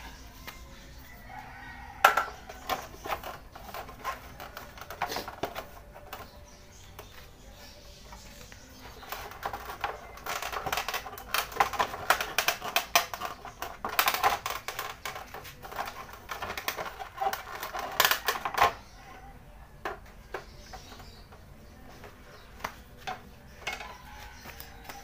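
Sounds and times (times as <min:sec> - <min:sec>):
plastic panel clicking and rattling: 0:08.8 - 0:18.9.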